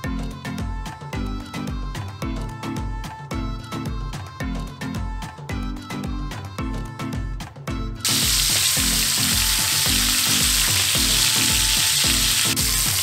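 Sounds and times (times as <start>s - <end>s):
background music with beat: 0.0s - 13.0s
meat sizzling in hot oil: 8.0s - 13.0s.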